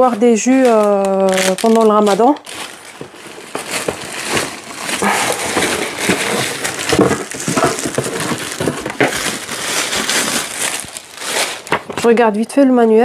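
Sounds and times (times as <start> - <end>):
plastic bag crinkling: 0.0 - 12.4
small knocks: 2.9 - 9.5.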